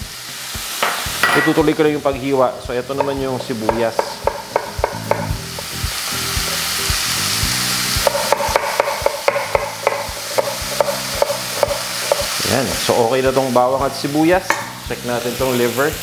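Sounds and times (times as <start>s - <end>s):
meat sizzling in a pan: 0.0s - 16.0s
knife chopping on wooden board: 3.0s - 5.7s, 8.0s - 12.4s.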